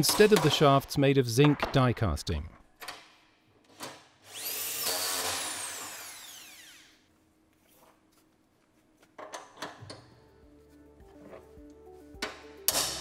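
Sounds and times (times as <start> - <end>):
cordless drill whining: 4.3 - 7.0.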